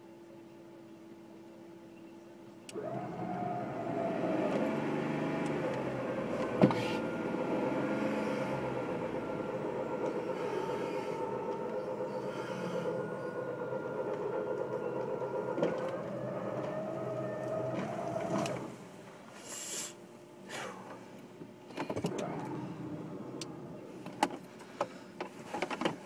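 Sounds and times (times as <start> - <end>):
electric winch whining: 2.7 - 18.9, 22.1 - 24.1.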